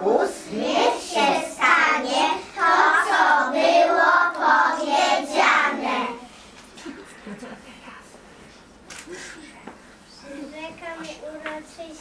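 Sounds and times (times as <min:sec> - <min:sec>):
young children singing: 0:00.1 - 0:06.3.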